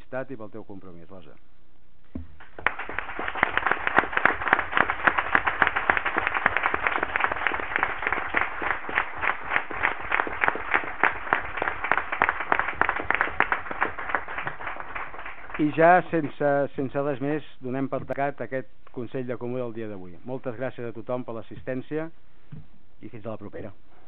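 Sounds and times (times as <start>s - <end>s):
people clapping: 2.4s - 16.4s.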